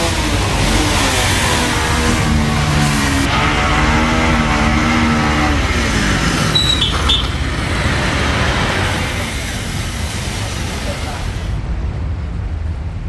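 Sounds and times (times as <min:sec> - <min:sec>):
vehicle engine running: 0:00.0 - 0:13.0
brief high squeal: 0:06.5 - 0:07.4.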